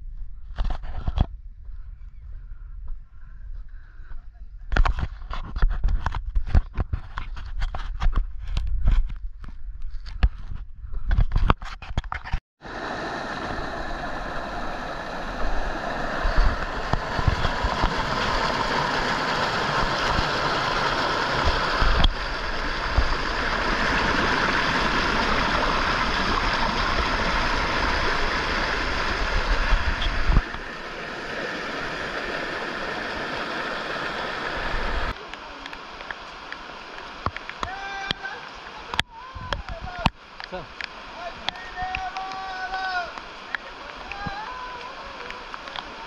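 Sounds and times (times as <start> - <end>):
stream rushing over rocks: 12.6 - 46.0.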